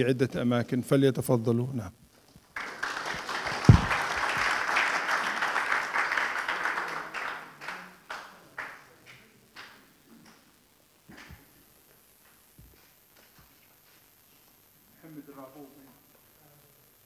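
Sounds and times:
audience applauding: 0:02.5 - 0:09.9
low thump: 0:03.7 - 0:04.0.

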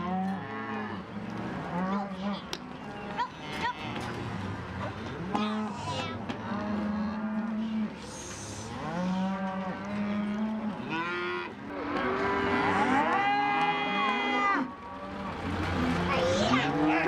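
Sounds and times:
cattle mooing: 0:08.6 - 0:17.0.

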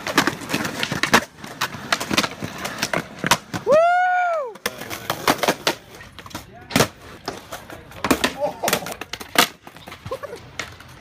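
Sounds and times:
skateboards clacking on concrete: 0:00.0 - 0:11.0.

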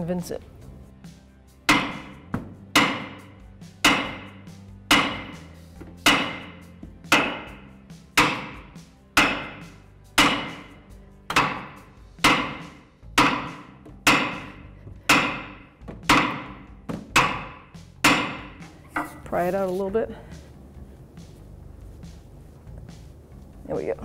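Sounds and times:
hammer striking metal: 0:01.7 - 0:19.2.

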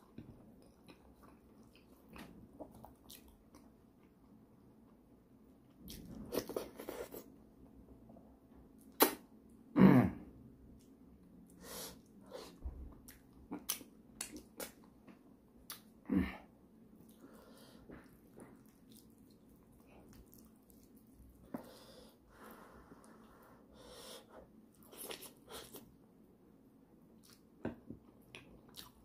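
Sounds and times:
sudden throat sounds: 0:09.7 - 0:10.4
wet chewing and lip smacks: 0:13.0 - 0:15.9, 0:17.9 - 0:21.7, 0:27.2 - 0:27.7.

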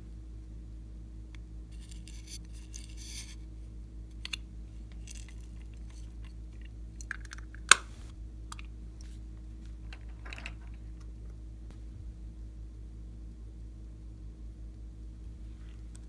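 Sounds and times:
low electrical hum: 0:00.0 - 0:16.0
plastic pieces clicking: 0:04.1 - 0:07.8.

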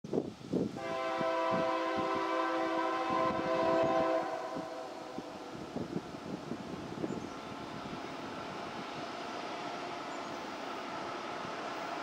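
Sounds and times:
locomotive air horn: 0:00.8 - 0:05.4.

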